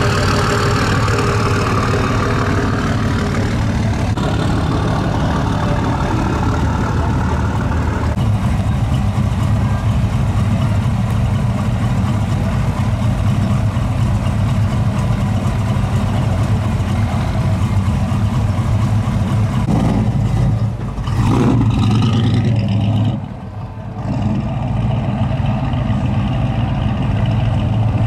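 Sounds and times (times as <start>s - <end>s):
pickup truck engine rumbling: 0.0s - 28.0s.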